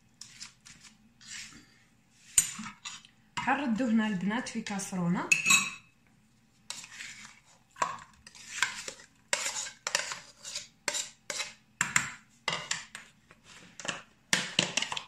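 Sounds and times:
metal spoon clinking and scraping: 0:02.3 - 0:03.1, 0:05.3 - 0:05.9, 0:07.9 - 0:11.6.

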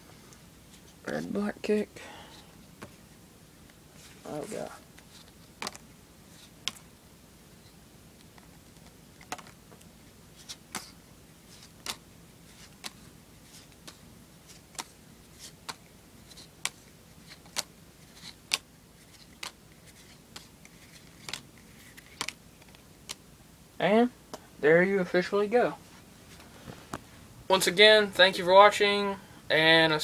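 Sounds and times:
cards clicking onto pile: 0:05.6 - 0:05.8, 0:08.2 - 0:09.6, 0:11.6 - 0:12.0, 0:13.6 - 0:23.2.

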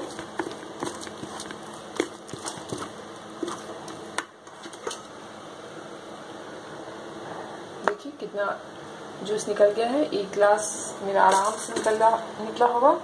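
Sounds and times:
plastic spoon scraping strainer: 0:00.0 - 0:05.1.

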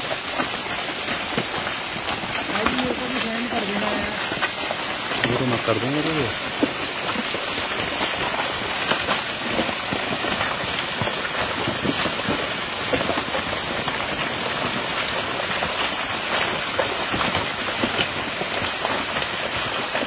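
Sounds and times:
steady rain falling: 0:00.0 - 0:20.0.

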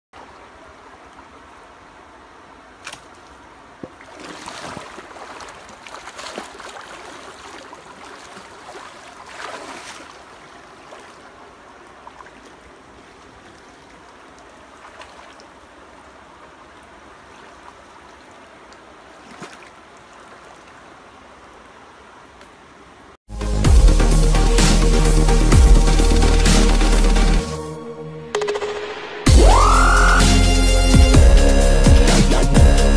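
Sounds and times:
water sloshing and splashing: 0:02.7 - 0:21.8.

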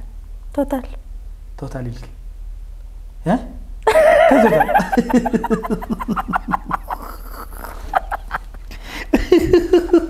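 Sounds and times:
woman laughing: 0:03.9 - 0:10.0.

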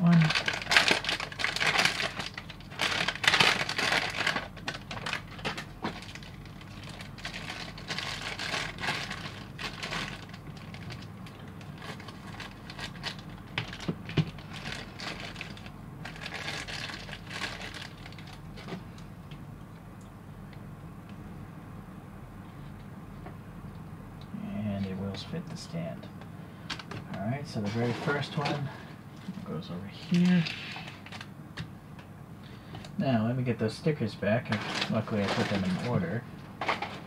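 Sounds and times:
plastic bags crinkling: 0:00.0 - 0:18.9, 0:30.1 - 0:31.3, 0:34.4 - 0:37.0.

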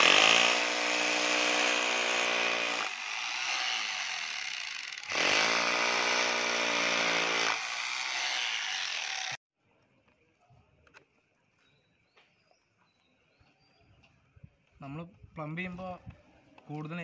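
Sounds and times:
hammer drill boring into wall: 0:00.0 - 0:09.4.

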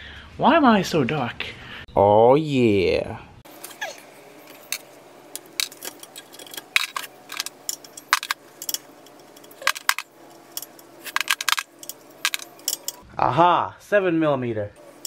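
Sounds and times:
metal sockets clinking: 0:03.5 - 0:13.0.

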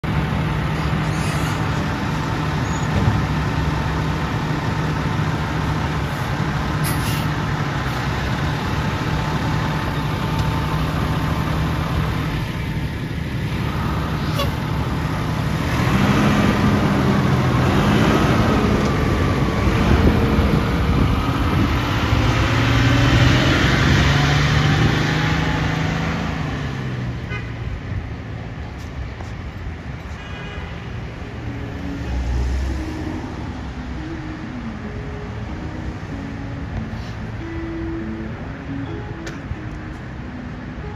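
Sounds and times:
fire engine diesel engine: 0:00.0 - 0:40.9.

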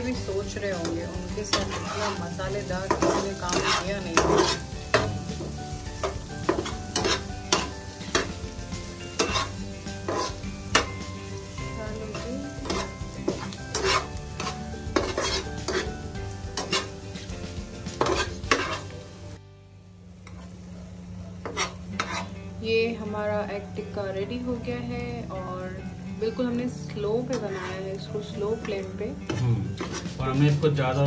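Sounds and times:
oil sizzling: 0:00.0 - 0:19.4
metal spatula scraping a pan: 0:00.4 - 0:11.0, 0:12.5 - 0:19.0, 0:21.4 - 0:22.4, 0:27.3 - 0:28.0, 0:29.3 - 0:30.2.

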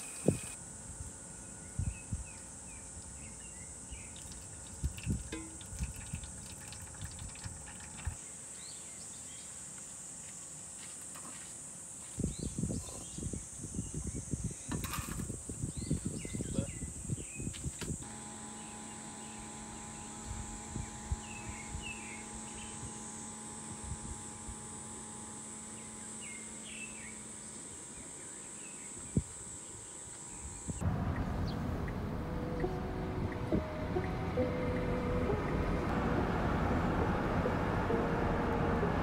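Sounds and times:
night insects chirping: 0:15.3 - 0:32.0
low steady hum: 0:30.8 - 0:39.0.

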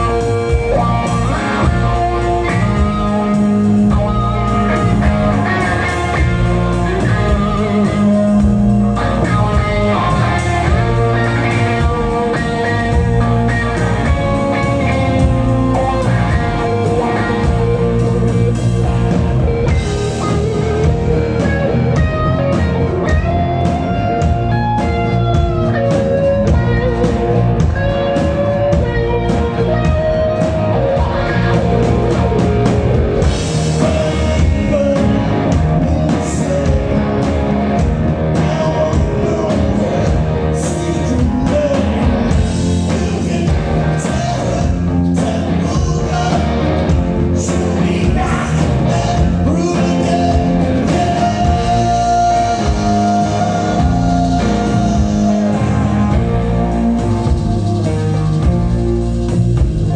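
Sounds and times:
drum kit: 0:00.0 - 0:59.9
electric guitars: 0:00.0 - 0:59.9
person singing: 0:33.4 - 0:37.4, 0:38.1 - 0:57.4.

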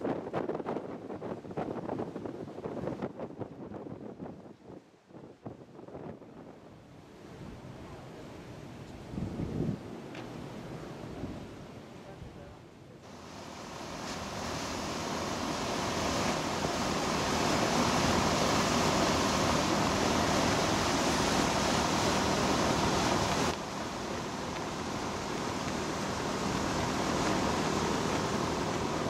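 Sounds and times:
faint ship hum: 0:00.0 - 0:29.0
propeller wash rushing: 0:13.0 - 0:29.0.

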